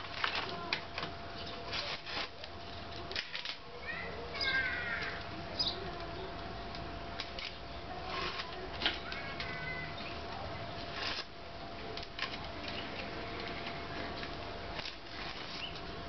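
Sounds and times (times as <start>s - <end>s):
tape and paper scraping off: 0.0s - 3.6s, 7.2s - 9.6s, 10.8s - 11.4s, 12.0s - 16.0s
bird chirping: 5.6s - 6.3s.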